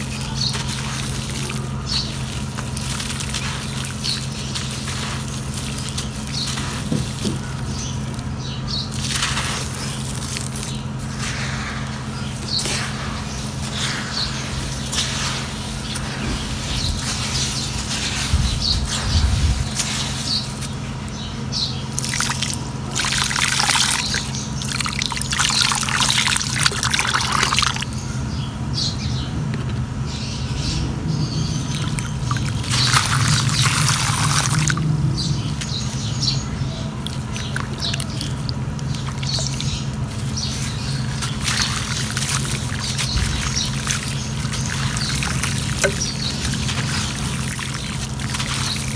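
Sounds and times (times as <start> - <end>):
water pouring into sand: 0.0 - 16.1, 22.0 - 28.0, 31.6 - 35.0, 37.0 - 48.9
hands scraping wet grit: 0.0 - 21.3, 31.7 - 48.9
steady low hum: 0.0 - 48.9.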